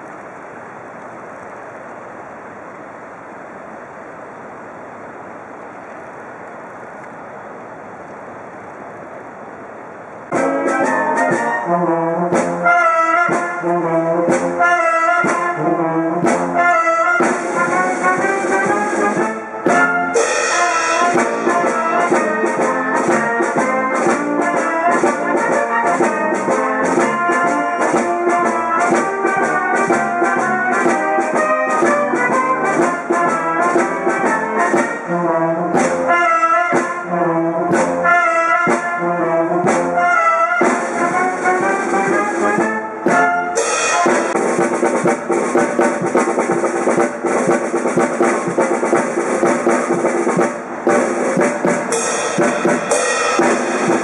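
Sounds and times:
brass band playing a tune: 10.3s - 54.0s
steady beat: 10.3s - 54.0s.

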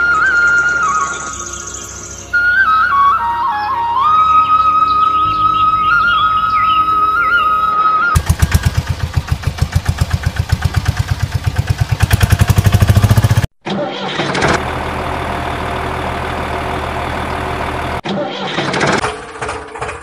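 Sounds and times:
flute music: 0.0s - 8.8s
tractor engine idling: 8.2s - 13.5s, 14.2s - 18.0s, 18.6s - 20.0s
tractor engine cranking and starting: 8.2s - 20.0s.

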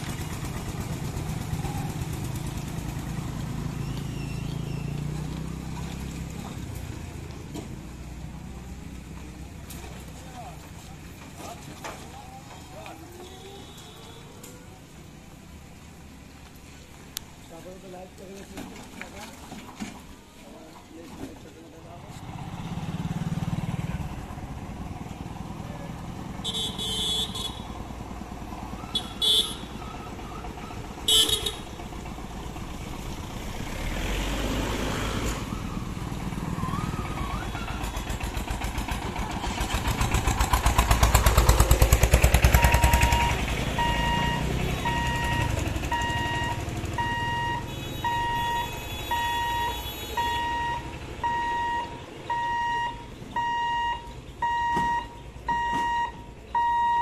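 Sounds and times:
vehicles passing: 0.0s - 57.0s
crossing warning beeper: 42.5s - 57.0s.

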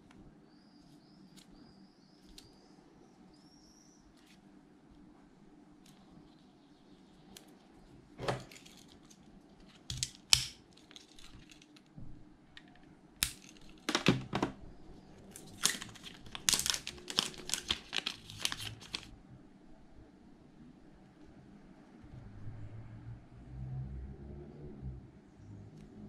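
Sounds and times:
plastic film crackling and crinkling: 8.5s - 11.9s, 15.3s - 19.1s.

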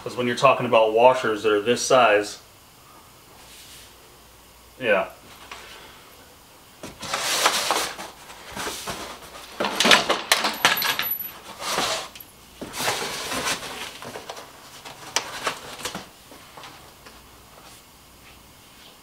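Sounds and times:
cardboard rustling: 6.8s - 9.8s
metal hardware clinking in box: 10.3s - 12.4s.

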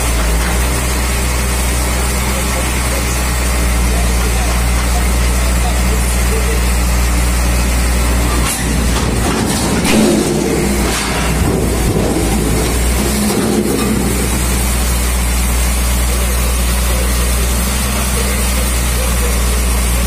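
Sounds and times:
heavy machine engine running: 0.0s - 20.0s
scrap metal clattering and scraping: 8.0s - 15.2s.

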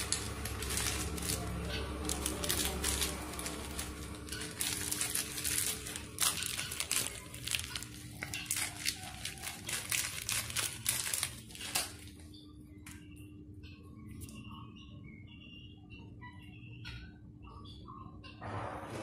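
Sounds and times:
crinkly rustling and crackling: 0.0s - 13.0s.

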